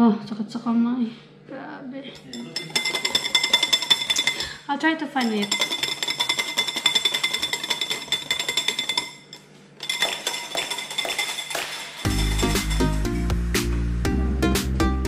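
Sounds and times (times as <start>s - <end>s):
utensil clinking against container: 2.2s - 4.6s, 5.2s - 13.1s
music: 11.5s - 15.0s.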